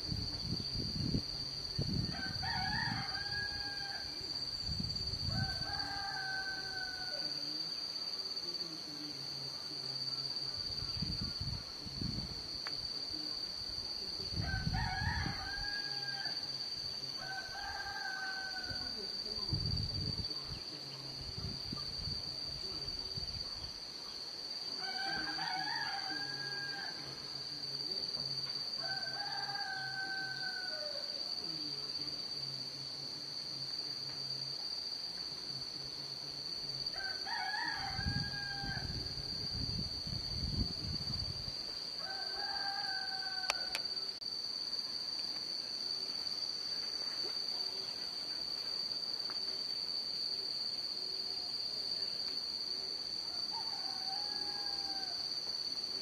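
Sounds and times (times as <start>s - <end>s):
rooster crowing: 2.0s - 4.4s, 5.2s - 7.6s, 14.4s - 19.2s, 24.8s - 27.4s, 28.8s - 31.4s, 36.9s - 39.4s, 42.0s - 44.1s, 53.2s - 55.4s.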